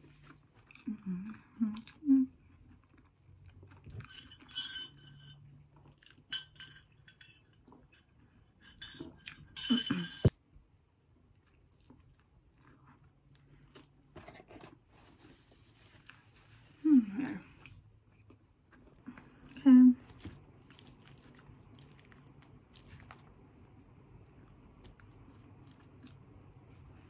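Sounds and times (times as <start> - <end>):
chewing: 0.1 - 4.1, 11.3 - 14.0, 17.6 - 27.0.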